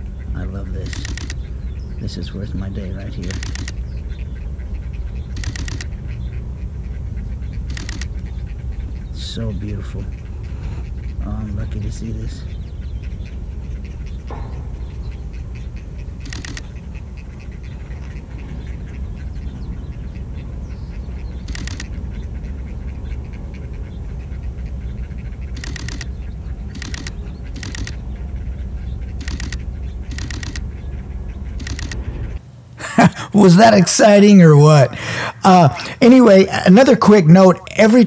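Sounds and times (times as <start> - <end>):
herons clicking: 0.0 - 32.1, 32.8 - 38.0
steady low rumble: 0.0 - 32.4.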